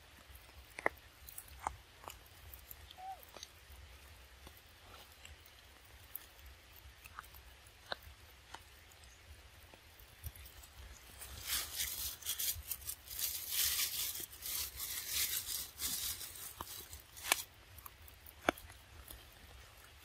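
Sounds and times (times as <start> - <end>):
rustling and tearing: 10.2 - 20.0.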